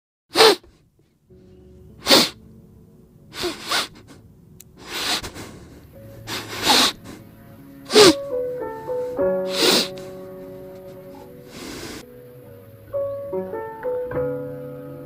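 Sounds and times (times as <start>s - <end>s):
faint background music: 0.7s - 15.0s
puppy crying: 3.4s - 4.2s, 6.3s - 7.2s, 7.9s - 8.2s.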